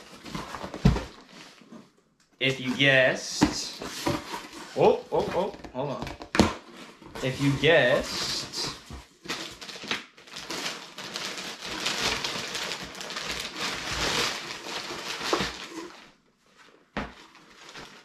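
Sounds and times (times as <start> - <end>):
plastic bag crinkling: 7.2 - 16.1, 17.2 - 18.0.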